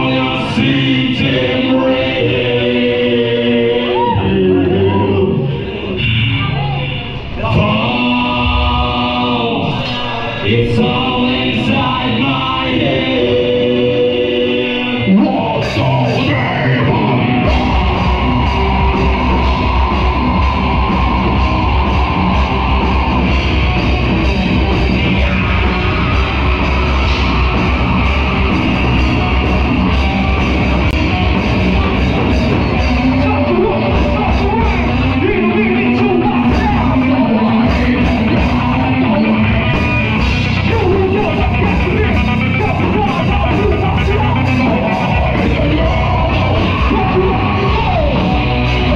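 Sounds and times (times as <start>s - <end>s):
shouted vocals: 0.0s - 48.9s
live rock band playing: 10.8s - 48.9s.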